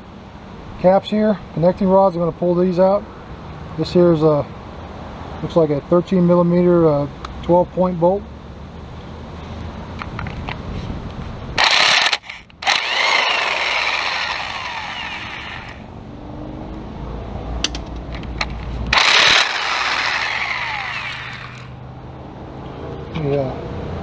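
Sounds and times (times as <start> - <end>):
tool whirring winding down: 11.6 - 15.9, 18.9 - 21.8
impact wrench hammering: 18.9 - 21.7.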